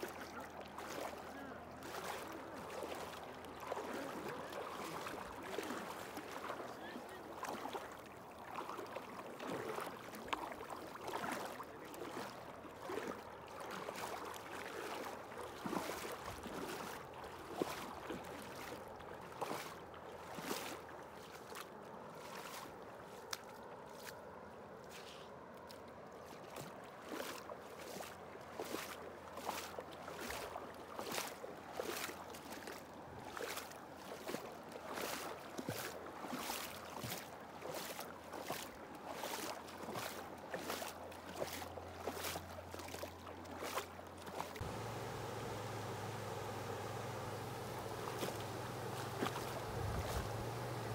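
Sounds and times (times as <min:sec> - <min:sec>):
running water: 0:00.0 - 0:21.6, 0:42.7 - 0:50.9
water splashing and sloshing: 0:00.0 - 0:50.9.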